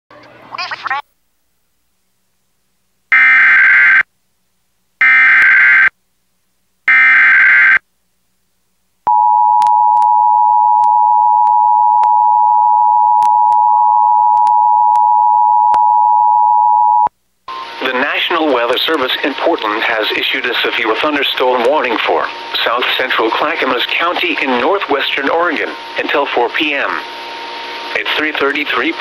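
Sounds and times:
shrill digital header tones: 0:03.1 - 0:04.0, 0:05.0 - 0:05.9, 0:06.9 - 0:07.8, 0:16.7 - 0:29.0.

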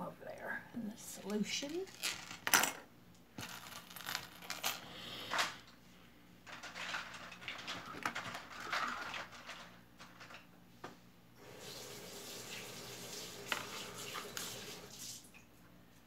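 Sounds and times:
small objects clinking: 0:01.7 - 0:02.8, 0:03.4 - 0:04.8
water running from a tap: 0:11.4 - 0:15.4.

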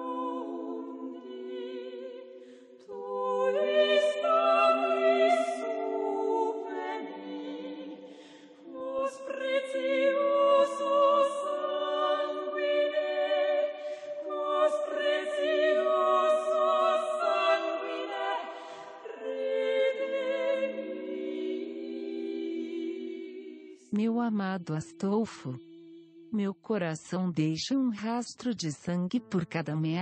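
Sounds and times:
choir singing unaccompanied: 0:00.0 - 0:26.4.

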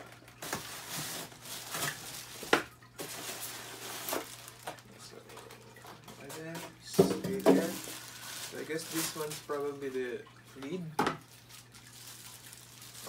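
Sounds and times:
plastic bags crinkling: 0:00.0 - 0:13.0
styrofoam rubbing and knocking: 0:06.9 - 0:09.4.

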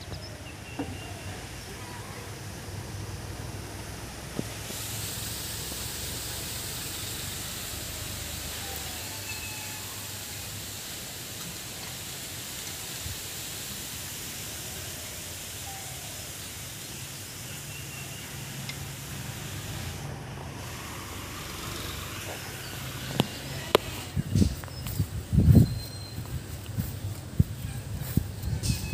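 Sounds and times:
outdoor background noise: 0:00.0 - 0:28.9.

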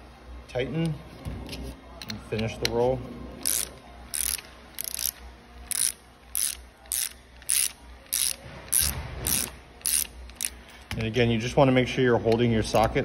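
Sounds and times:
socket wrench ratchet clicking: 0:03.4 - 0:11.1.

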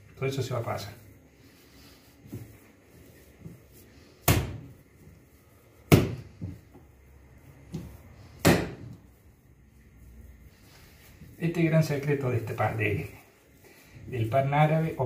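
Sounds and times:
dough slapped onto countertop: 0:04.2 - 0:04.7, 0:05.9 - 0:06.6.

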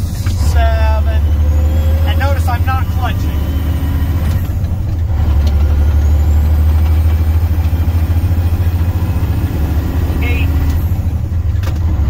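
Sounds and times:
diesel truck engine pulling: 0:00.0 - 0:12.0
gear shift click: 0:04.2 - 0:05.7, 0:11.5 - 0:11.9.

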